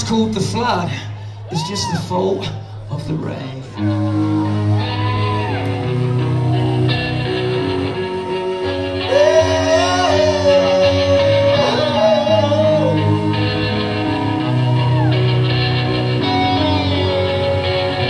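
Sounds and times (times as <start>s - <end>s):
electric guitar lead line: 0.0s - 18.0s
rock band playing live: 3.8s - 18.0s.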